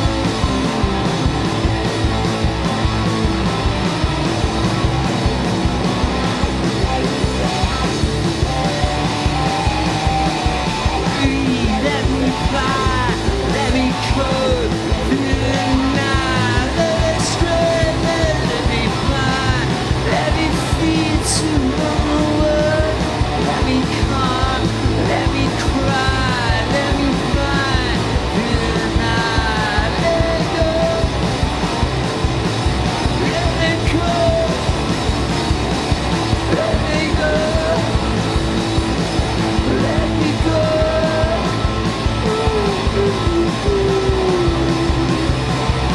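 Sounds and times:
bass guitar: 0.0 - 45.9
drum kit beat: 0.0 - 45.9
electric guitar: 0.0 - 45.9
person singing: 10.8 - 31.2, 33.0 - 34.7, 36.4 - 38.2, 39.6 - 45.9.

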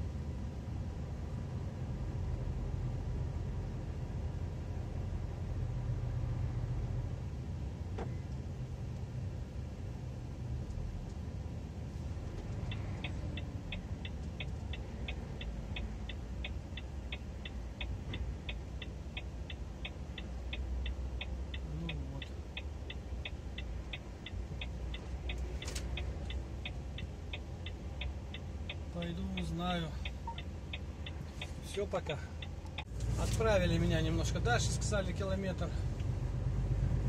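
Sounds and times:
truck engine rumble: 0.0 - 37.0
indicator relay ticking: 12.7 - 32.9.

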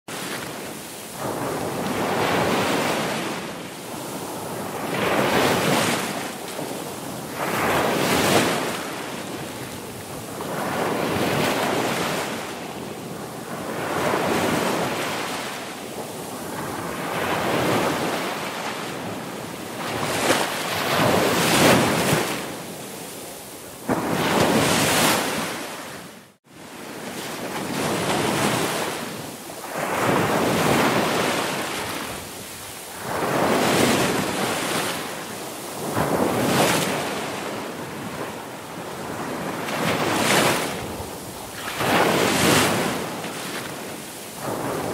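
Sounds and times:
ocean waves breaking: 0.1 - 44.9.

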